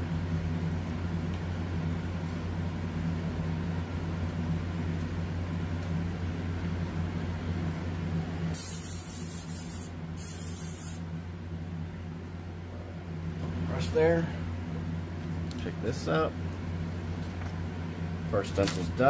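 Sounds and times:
steady low hum: 0.0s - 19.0s
airbrush spray hissing: 8.5s - 11.0s.

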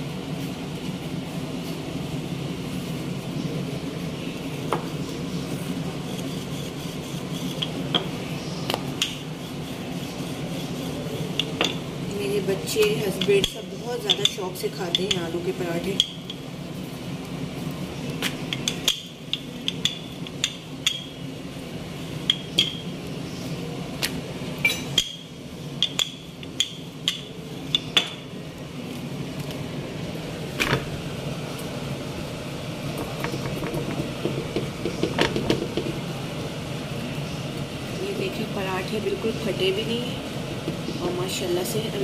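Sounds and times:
steady low hum: 0.0s - 42.0s
rolling pin knocking on countertop: 33.0s - 36.0s.

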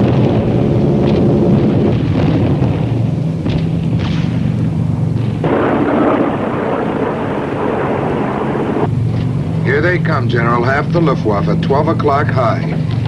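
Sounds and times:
piston engines droning: 0.0s - 13.0s
rushing roar: 5.2s - 8.9s.

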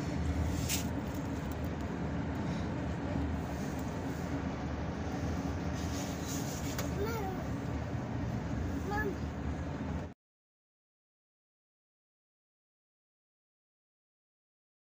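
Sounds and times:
car cabin road and engine rumble: 0.0s - 10.2s.

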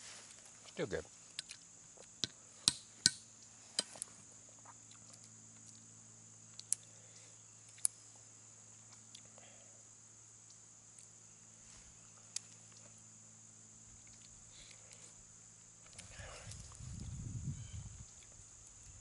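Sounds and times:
insects droning: 0.0s - 19.0s
nuts cracked with hatchet on stone: 2.2s - 3.2s.

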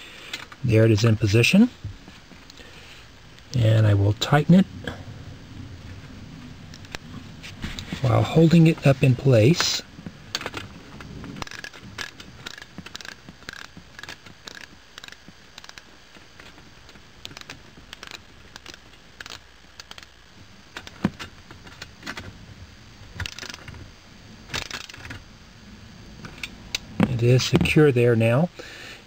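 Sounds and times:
ratcheting wrench clicking: 11.4s - 15.9s, 23.2s - 23.7s.

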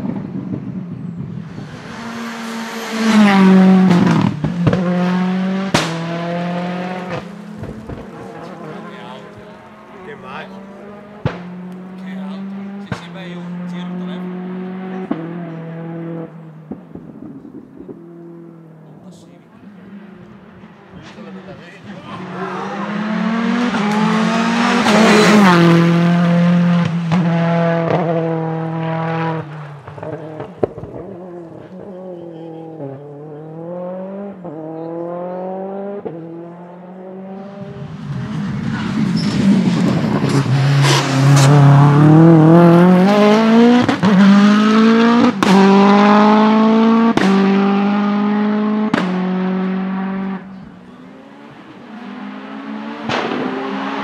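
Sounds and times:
race car engine accelerating: 0.0s - 54.0s
engine backfire bangs: 53.0s - 53.6s.

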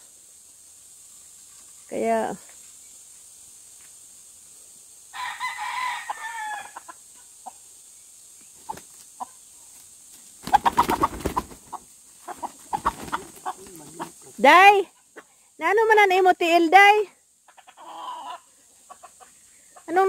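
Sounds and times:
rooster crowing: 5.1s - 6.9s
quick clucking: 10.4s - 14.3s.

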